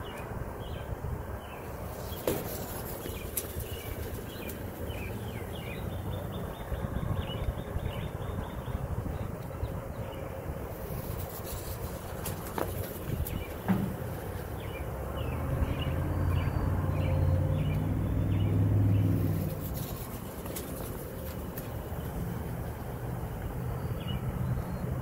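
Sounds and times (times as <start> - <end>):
outdoor rumble: 0.0 - 25.0
small birds chirping: 0.0 - 25.0
low motor hum: 12.0 - 25.0.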